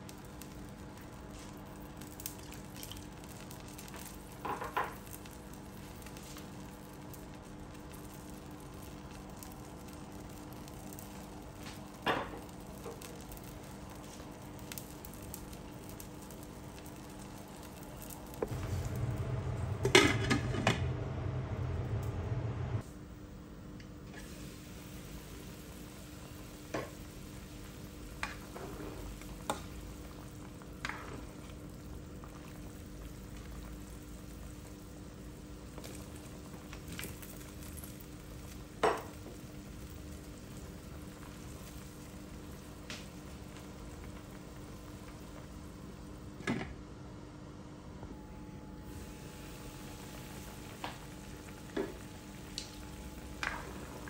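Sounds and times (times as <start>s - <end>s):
broth boiling: 0.0s - 22.9s, 24.0s - 54.0s.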